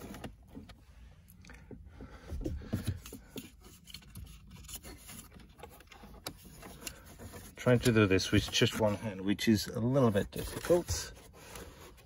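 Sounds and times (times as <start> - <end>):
cable scraping plastic trim: 3.0 - 9.2, 10.1 - 12.0.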